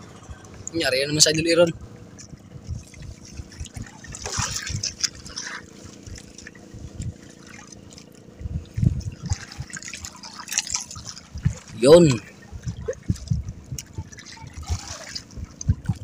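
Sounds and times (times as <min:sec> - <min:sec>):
water lapping against boat hull: 0:00.0 - 0:16.0
dull low thumps: 0:01.7 - 0:07.4, 0:08.3 - 0:10.1, 0:11.2 - 0:16.0.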